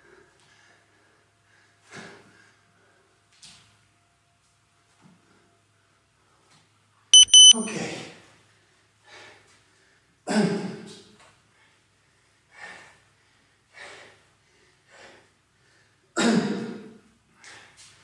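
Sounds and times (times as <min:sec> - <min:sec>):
man breathing hard: 0:12.1 - 0:16.1.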